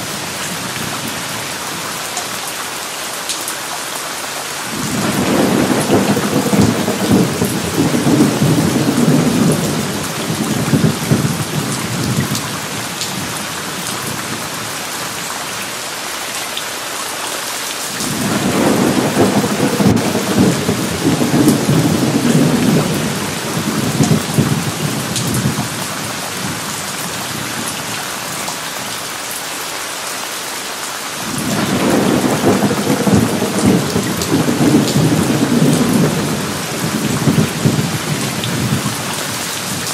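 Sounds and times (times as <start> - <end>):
steady rain: 0.0 - 39.9
rolling thunder: 4.7 - 12.5, 18.0 - 25.8, 31.3 - 39.9.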